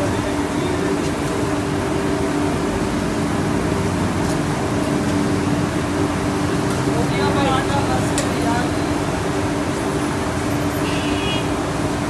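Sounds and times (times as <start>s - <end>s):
rushing drone of kitchen equipment: 0.0s - 12.0s.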